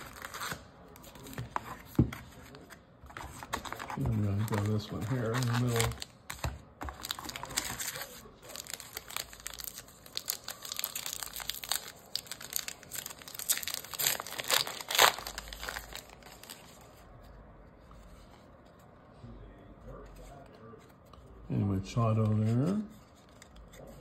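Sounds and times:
wrapper crinkling and tearing: 3.7s - 6.2s, 6.9s - 16.8s.

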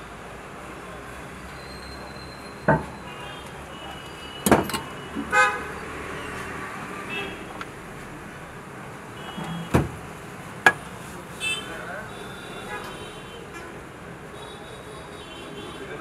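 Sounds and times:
street traffic noise: 0.0s - 16.0s
vehicle horn toot: 3.0s - 5.7s.

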